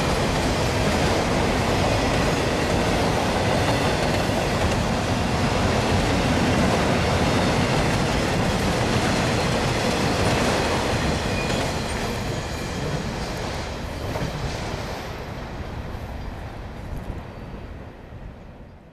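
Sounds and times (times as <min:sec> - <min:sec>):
train wheels clattering on rails: 0:00.0 - 0:15.3.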